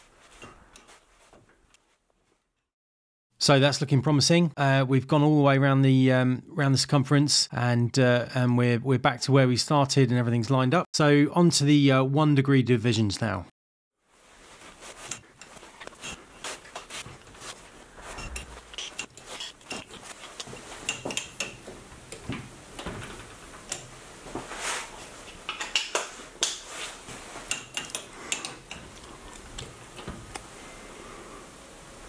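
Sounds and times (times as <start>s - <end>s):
metallic clicks and scrapes: 14.9s - 22.2s, 27.4s - 29.7s.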